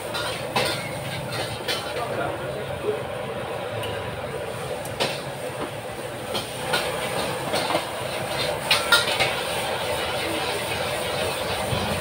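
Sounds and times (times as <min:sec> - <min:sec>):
metal spatula scraping wok: 0:00.0 - 0:02.0, 0:06.3 - 0:12.0
gas burner rushing: 0:00.0 - 0:12.0.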